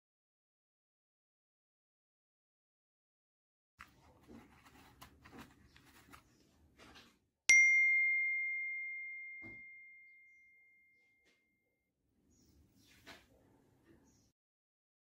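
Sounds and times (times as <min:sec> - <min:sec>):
high bell-like ding: 0:07.5 - 0:11.6.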